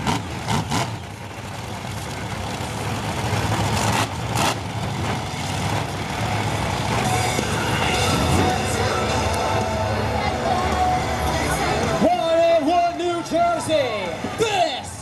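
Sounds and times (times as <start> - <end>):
truck engine revving in burnout: 0.0 - 10.1.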